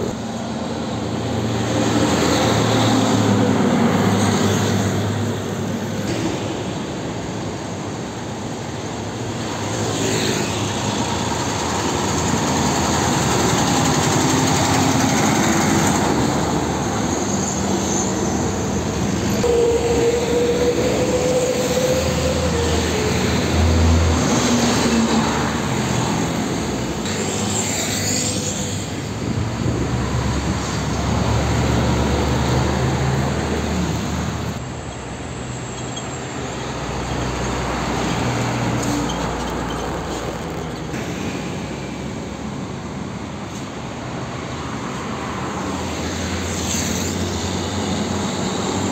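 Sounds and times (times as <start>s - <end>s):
diesel trucks passing: 0.0s - 48.9s.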